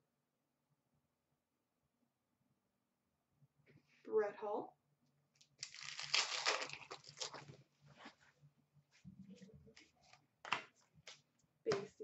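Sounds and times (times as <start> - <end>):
wrapper torn with crinkling rustle: 5.5 - 7.6.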